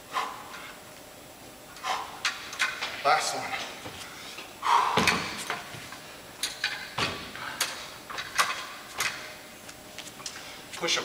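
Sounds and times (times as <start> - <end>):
metal dumbbells clanking: 4.8 - 5.7.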